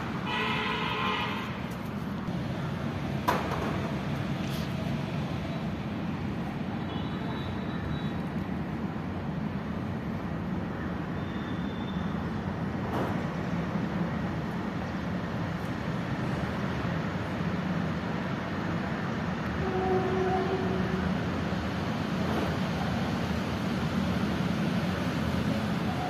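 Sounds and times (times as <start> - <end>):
vehicle traffic rumble: 0.0 - 26.0.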